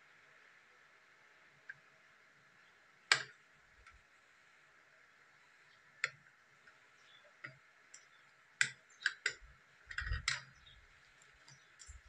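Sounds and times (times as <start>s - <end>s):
plastic clicks and knocks: 8.6s - 10.6s.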